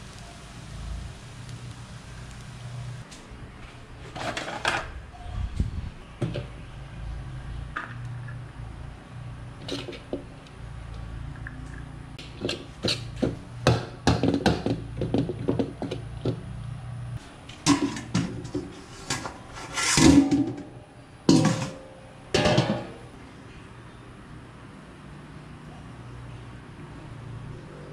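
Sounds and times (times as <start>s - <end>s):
steel lid clanking on wok: 17.6s - 23.1s
metal ladle scraping a wok: 17.7s - 20.7s.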